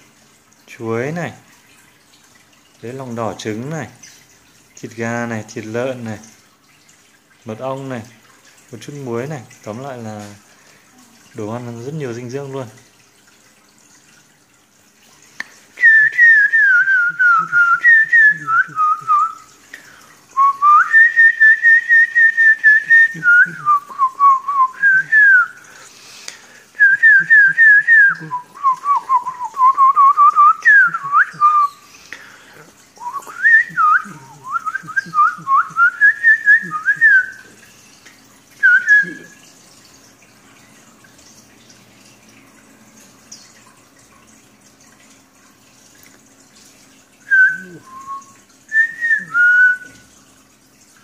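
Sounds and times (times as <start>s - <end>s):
person whistling: 15.8s - 19.5s, 20.4s - 25.6s, 26.8s - 31.8s, 33.0s - 37.5s, 38.6s - 39.4s, 47.3s - 50.0s.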